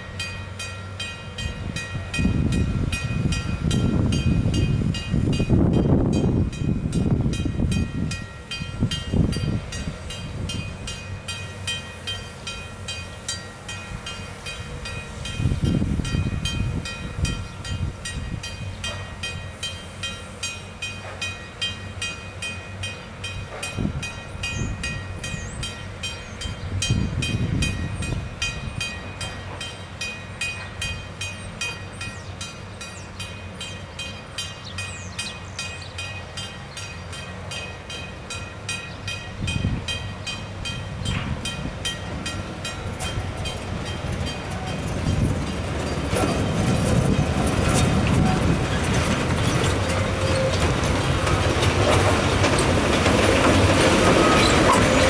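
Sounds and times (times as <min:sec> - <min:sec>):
railway crossing bell ringing: 0:00.0 - 0:55.0
wind buffeting microphone: 0:01.4 - 0:11.2, 0:13.9 - 0:19.4, 0:23.4 - 0:29.6, 0:39.0 - 0:55.0.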